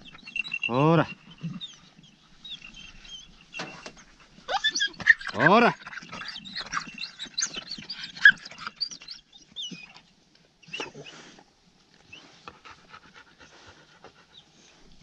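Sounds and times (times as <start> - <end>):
dog squeaks and whines: 0.0 - 10.0, 10.6 - 11.3
dog panting: 12.4 - 15.0.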